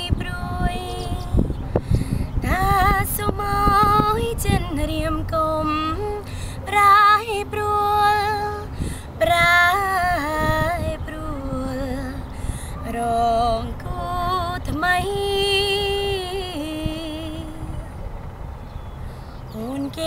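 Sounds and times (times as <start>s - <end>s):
woman singing a cappella: 0.0s - 18.0s, 19.5s - 20.0s
singer breathing: 1.6s - 2.4s, 6.2s - 6.7s, 8.7s - 9.2s, 12.2s - 12.9s, 19.0s - 19.4s.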